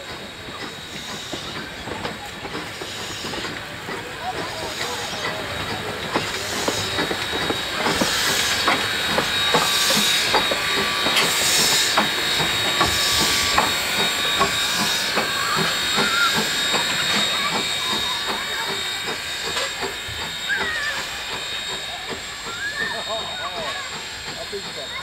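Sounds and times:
steam exhaust hissing in pulses: 0:00.0 - 0:25.0
wheels clicking on track: 0:00.0 - 0:25.0.

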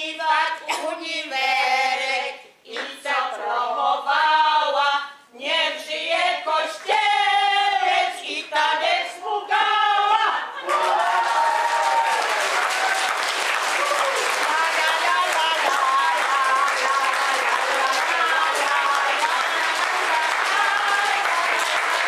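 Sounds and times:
women singing together: 0:00.0 - 0:11.1, 0:14.4 - 0:22.0
applause: 0:10.6 - 0:22.0.

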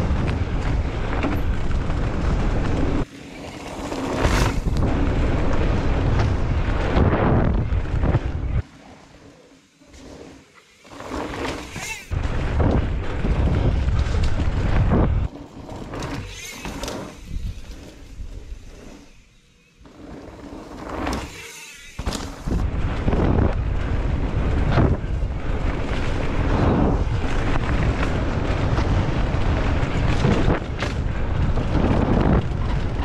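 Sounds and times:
wind buffeting: 0:00.0 - 0:08.6, 0:12.1 - 0:16.4, 0:17.0 - 0:19.2, 0:22.3 - 0:33.0
mountain bike passing: 0:00.0 - 0:33.0.

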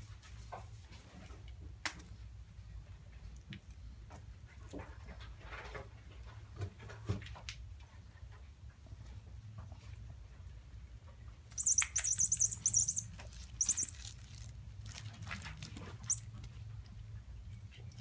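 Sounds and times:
warbling electronic chirps: 0:11.6 - 0:14.0, 0:16.0 - 0:16.2.

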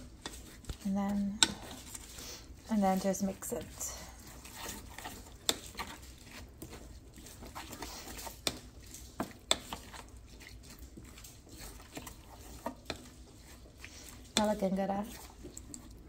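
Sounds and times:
spoon stirring in a bowl: 0:00.0 - 0:16.0.

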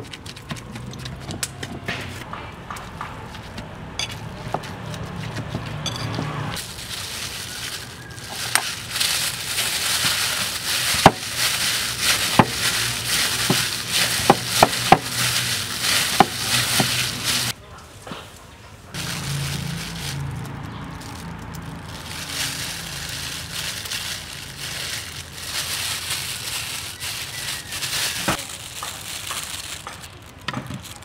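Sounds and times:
plastic bag crinkling: 0:06.6 - 0:17.6, 0:18.9 - 0:31.0.

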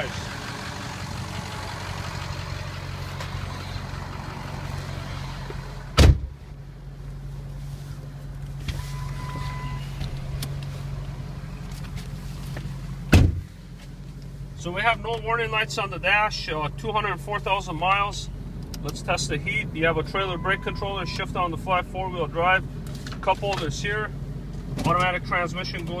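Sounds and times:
diesel engine idling: 0:00.0 - 0:26.0
car doors shutting: 0:05.4 - 0:06.4, 0:08.6 - 0:10.8, 0:11.7 - 0:13.5.

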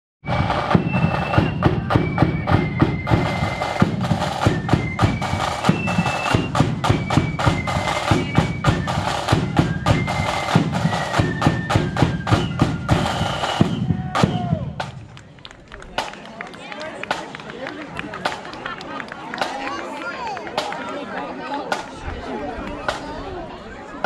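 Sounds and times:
flute melody: 0:00.2 - 0:14.9
snare drum beats: 0:00.2 - 0:15.1, 0:22.8 - 0:23.1.

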